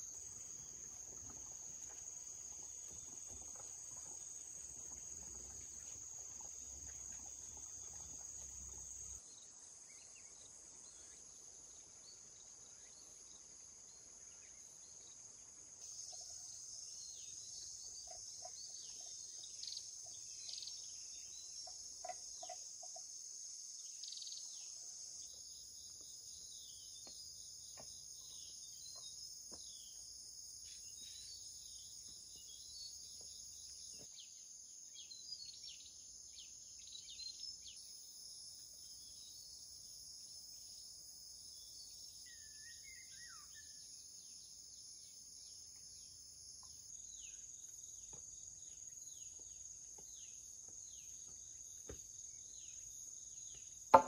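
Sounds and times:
insects droning: 0:00.0 - 0:54.0
bird chirps: 0:42.2 - 0:43.9.

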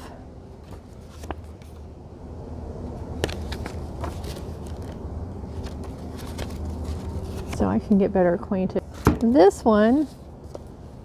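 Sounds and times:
low background rumble: 0:00.0 - 0:11.0
book pages clicking and rustling: 0:00.6 - 0:01.9, 0:03.2 - 0:08.0.

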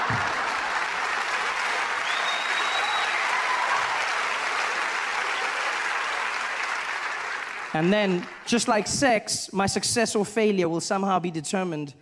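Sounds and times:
audience applauding: 0:00.0 - 0:09.0
high whistle: 0:02.0 - 0:03.8.

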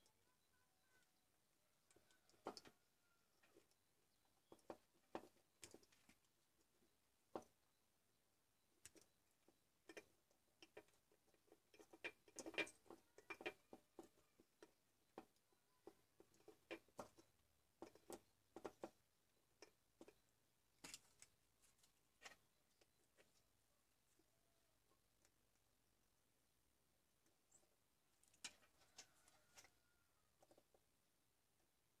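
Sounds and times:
small clicks and taps: 0:01.9 - 0:02.8, 0:03.4 - 0:07.6, 0:08.8 - 0:23.5.

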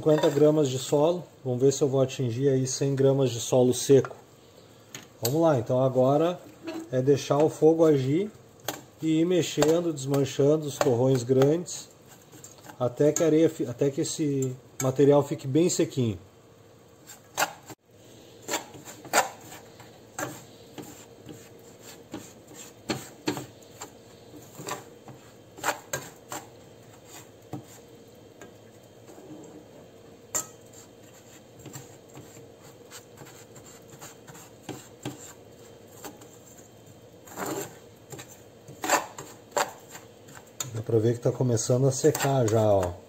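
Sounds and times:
metal spoon scraping soil in pan: 0:18.4 - 0:27.9, 0:37.2 - 0:40.4.

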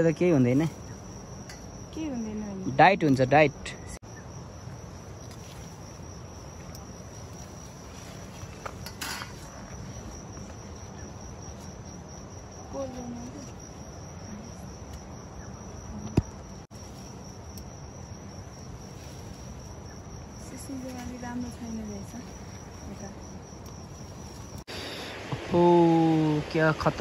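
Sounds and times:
insects trilling: 0:00.0 - 0:27.0
soft rustle: 0:05.0 - 0:11.8, 0:16.7 - 0:17.5, 0:18.5 - 0:23.2.

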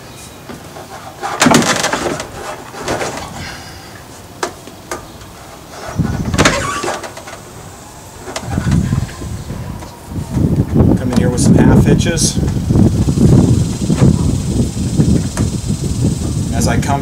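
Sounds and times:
rope scraping across boards: 0:00.2 - 0:04.3, 0:05.2 - 0:07.4.

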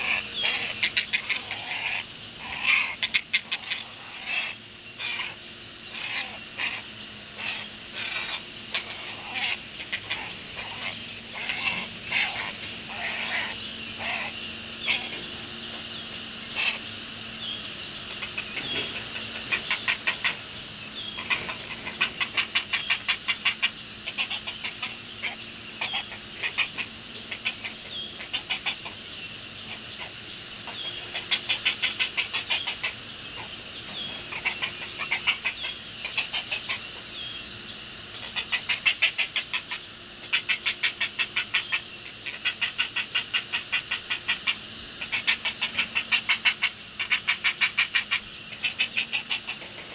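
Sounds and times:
heron nestlings chattering calls: 0:00.0 - 0:37.4.

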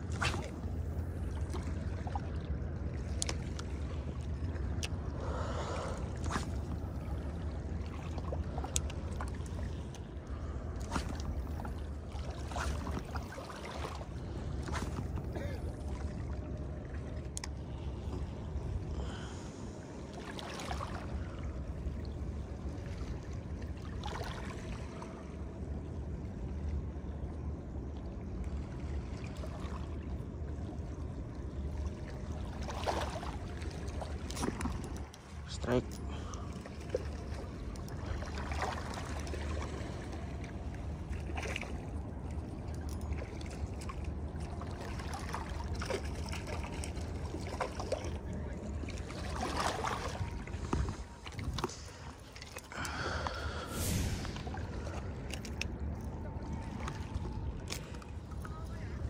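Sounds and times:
moving water: 0:00.0 - 0:59.0
low rumble: 0:36.0 - 0:59.0.

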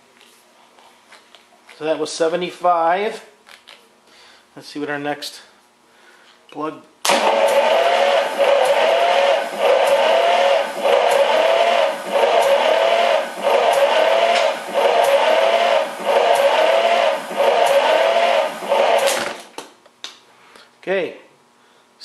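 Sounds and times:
starter motor cranking engine: 0:07.0 - 0:19.6.

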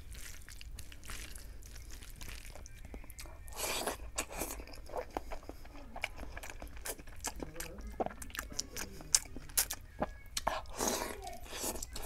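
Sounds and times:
hand mixing wet rice: 0:00.0 - 0:04.0
close chewing: 0:00.0 - 0:12.0.

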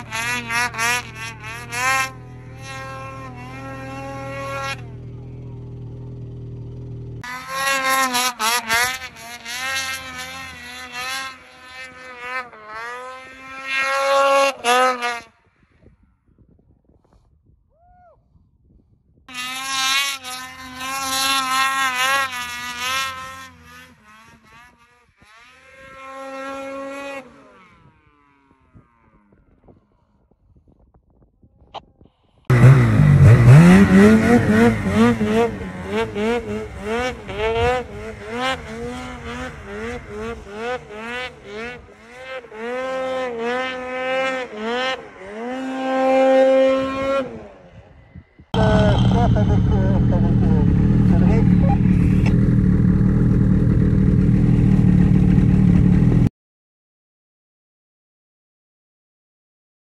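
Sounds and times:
snowmobile engine revving hard: 0:00.0 - 0:15.8, 0:19.3 - 0:30.2, 0:32.5 - 0:56.3.

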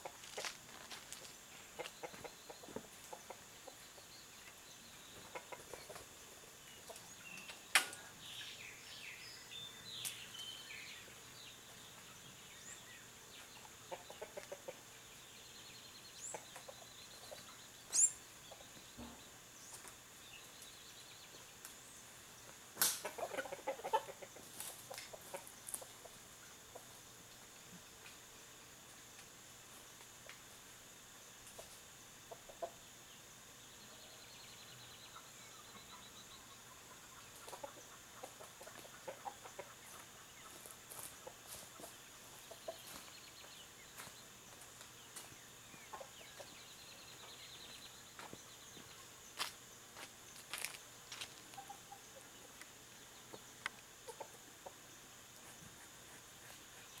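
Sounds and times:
chickens clucking: 0:00.0 - 0:08.6, 0:11.0 - 0:15.3, 0:16.2 - 0:20.0, 0:22.4 - 0:27.7, 0:31.4 - 0:33.0, 0:35.0 - 0:57.0.

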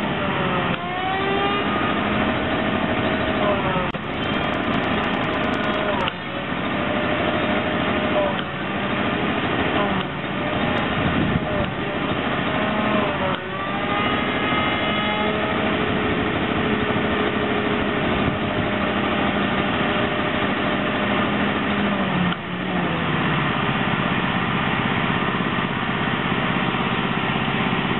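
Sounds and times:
pressure washer running: 0:00.0 - 0:27.9
shop vacuum running: 0:00.0 - 0:27.9.

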